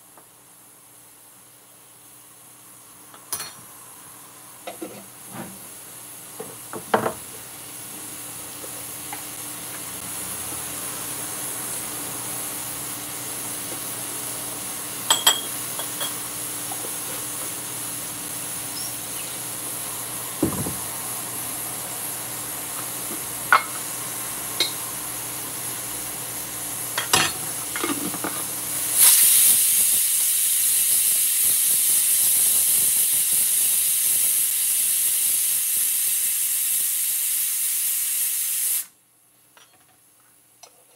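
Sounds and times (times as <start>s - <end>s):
pressure cooker low hiss: 4.6s - 39.0s
steam hissing from valve: 28.6s - 39.0s.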